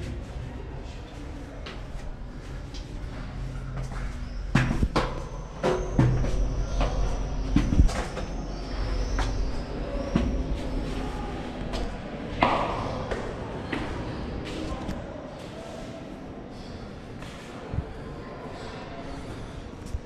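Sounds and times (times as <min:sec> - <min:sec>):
footsteps on stone stairs: 0:01.6 - 0:14.7.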